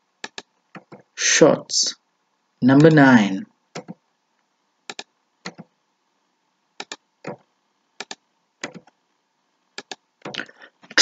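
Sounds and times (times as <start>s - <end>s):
keyboard typing clicks: 0.2s - 1.1s, 3.7s - 4.0s, 4.9s - 5.7s, 6.8s - 7.4s, 8.0s - 9.0s, 9.8s - 10.5s.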